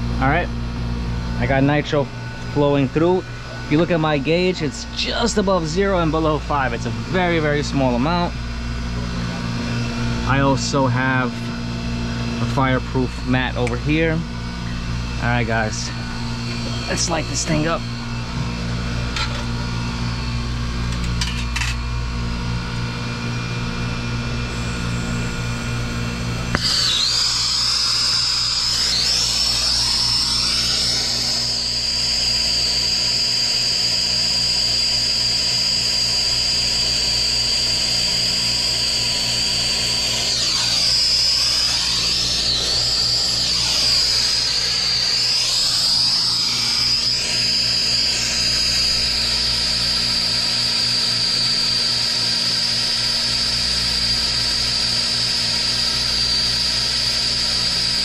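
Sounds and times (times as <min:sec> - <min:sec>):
torch flame hissing: 0:24.5 - 0:49.2.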